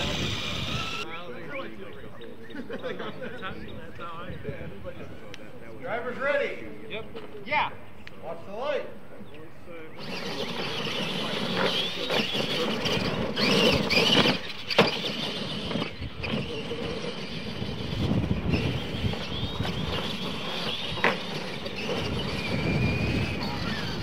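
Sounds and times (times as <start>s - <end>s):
toy truck motors whining: 0.0s - 1.2s, 9.9s - 24.0s.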